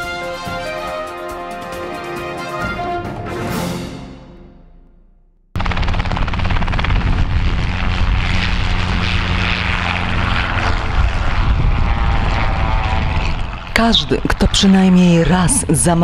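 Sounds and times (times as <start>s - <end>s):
helicopter engine: 5.6s - 16.0s
helicopter rotor chopping: 5.6s - 16.0s.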